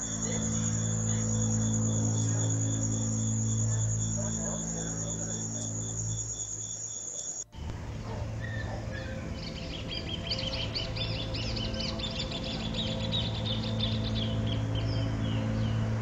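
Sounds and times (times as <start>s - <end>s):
birds chirping: 0.0s - 16.0s
crickets chirping: 0.0s - 16.0s
steady low hum: 0.0s - 16.0s.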